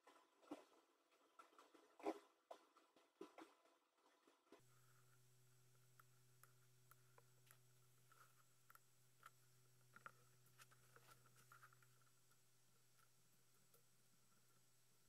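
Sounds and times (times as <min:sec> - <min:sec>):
low steady hum: 0:04.6 - 0:15.0.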